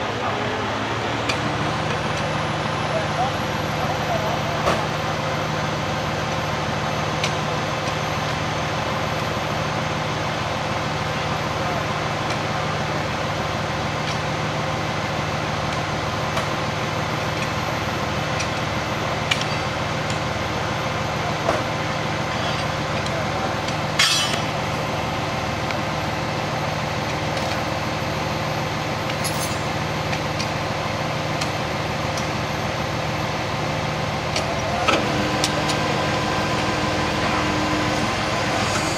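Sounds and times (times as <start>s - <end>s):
heavy machinery engines running: 0.0s - 38.9s
knocks and clinks of railroad ties: 22.3s - 24.6s, 29.0s - 30.6s.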